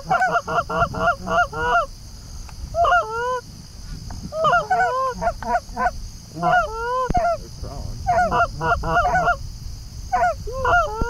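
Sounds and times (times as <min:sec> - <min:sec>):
geese honking and clucking: 0:00.0 - 0:01.9, 0:02.8 - 0:03.4, 0:04.3 - 0:09.4, 0:10.1 - 0:11.0.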